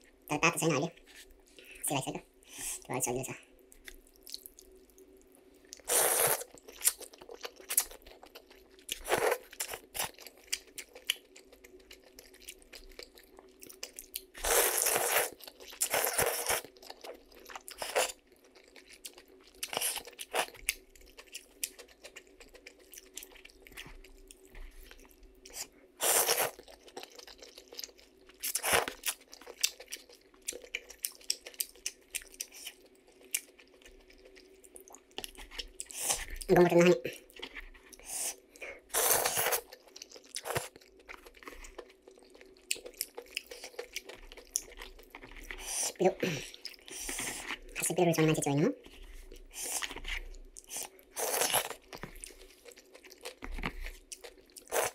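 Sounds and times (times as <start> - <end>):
person chewing: 3.6 - 36.5, 37.1 - 47.8, 48.8 - 54.9
slurping noodles: 5.9 - 6.5.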